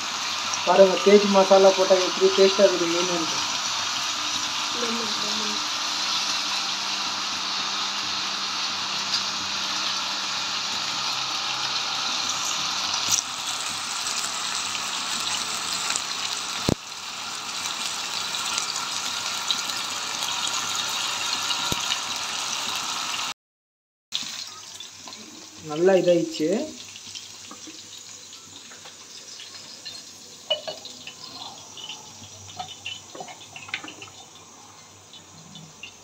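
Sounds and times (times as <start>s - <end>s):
fish sizzling in hot oil: 0.0s - 23.4s, 24.1s - 36.0s.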